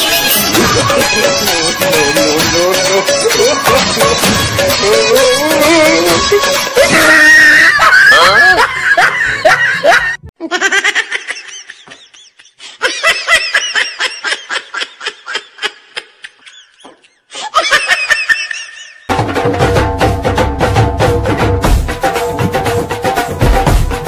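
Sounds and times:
music: 0:00.0 - 0:10.2, 0:19.1 - 0:24.0
high-pitched laughter: 0:06.8 - 0:19.1.

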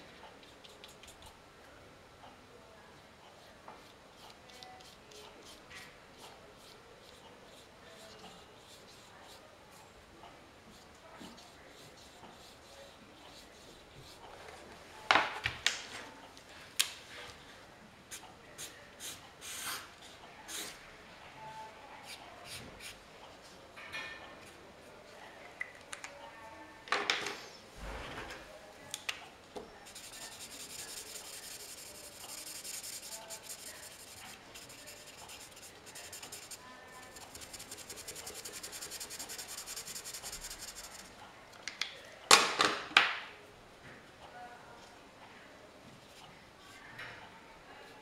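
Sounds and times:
marker pen scratching on paper: 0:29.8 - 0:41.1.

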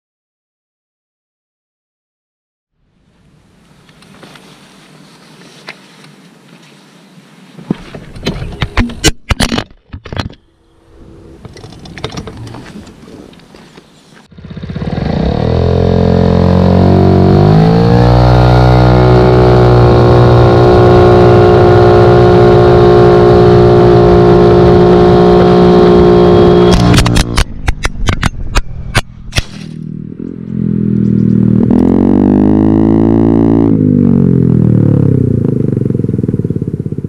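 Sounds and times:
scooter engine revving: 0:14.3 - 0:27.7, 0:29.6 - 0:37.0.

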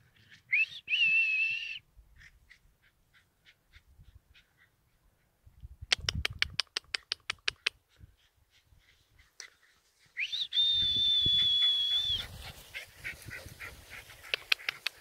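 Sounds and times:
long high whistle: 0:00.5 - 0:01.8, 0:10.2 - 0:12.2.

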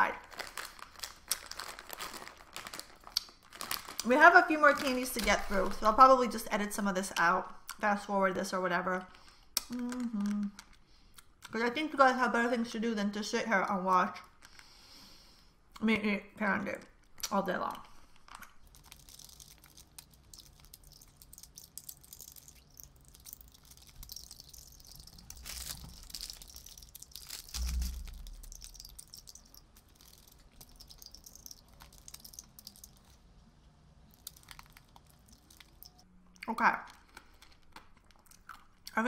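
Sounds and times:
wet mouth clicks sucking candy: 0:18.4 - 0:33.2, 0:34.1 - 0:36.0
low thump: 0:27.5 - 0:28.5.

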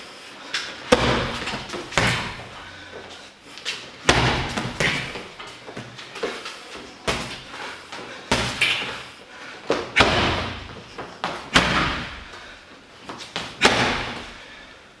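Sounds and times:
punches and kicks on heavy bag: 0:00.9 - 0:02.5, 0:04.0 - 0:05.3, 0:08.3 - 0:08.9, 0:09.8 - 0:12.3, 0:13.3 - 0:14.4.

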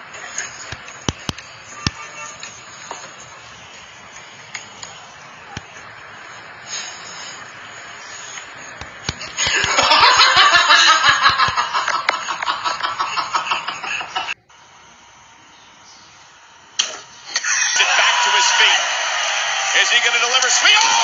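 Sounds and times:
person laughing: 0:09.2 - 0:14.4.

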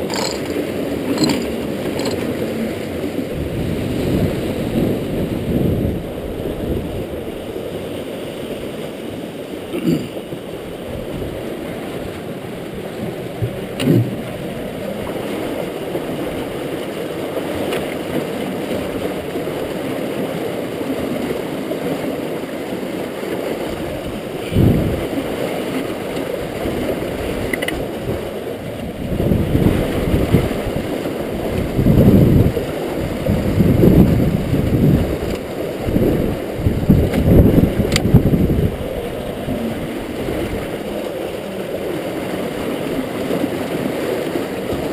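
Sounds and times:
river water rushing through fish trap: 0:00.0 - 0:44.9.

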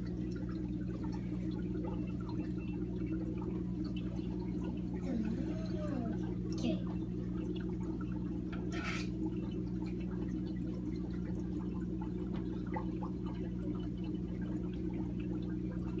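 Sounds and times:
aquarium water running: 0:00.0 - 0:16.0
low electrical hum: 0:00.0 - 0:16.0
water dripping: 0:00.0 - 0:16.0.

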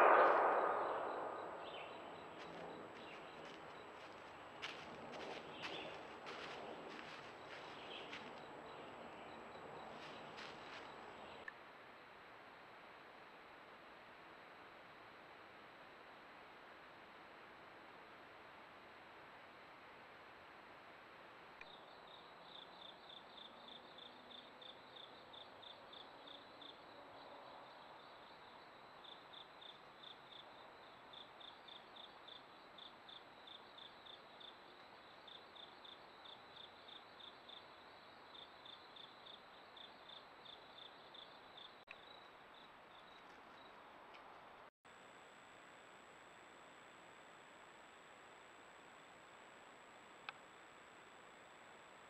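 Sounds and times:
cricket chirping: 0:00.0 - 0:11.5, 0:21.6 - 0:43.9.

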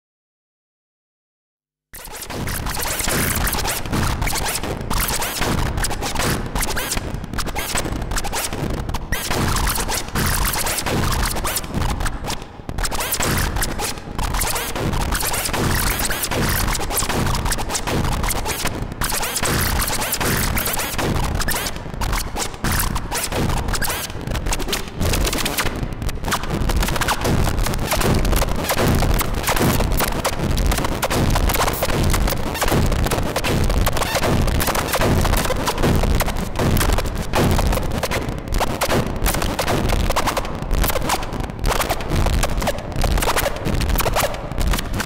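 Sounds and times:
choppy synthesizer noise texture: 0:12.8 - 0:45.0.

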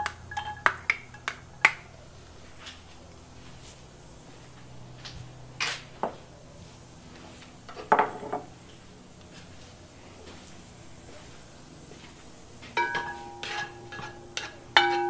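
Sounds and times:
utensils clattering against a pan: 0:07.7 - 0:08.5, 0:12.8 - 0:15.0.

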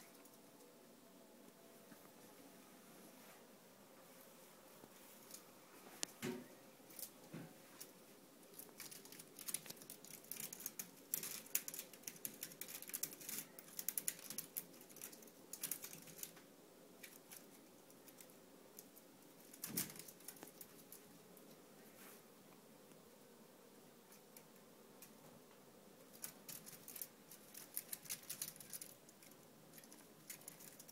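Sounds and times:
claws scratching wicker: 0:08.5 - 0:16.4, 0:26.1 - 0:30.9.

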